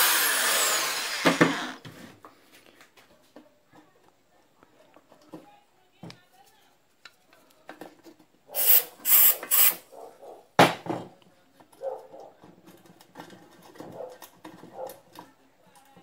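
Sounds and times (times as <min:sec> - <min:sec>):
aerosol spray hisses: 0:08.6 - 0:09.8.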